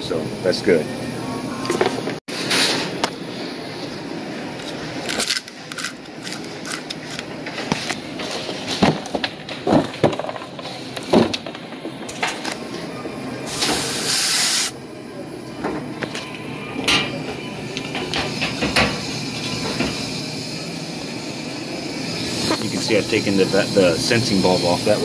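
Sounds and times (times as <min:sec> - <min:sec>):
refrigerant gas hissing: 0:13.4 - 0:14.8, 0:17.6 - 0:25.0.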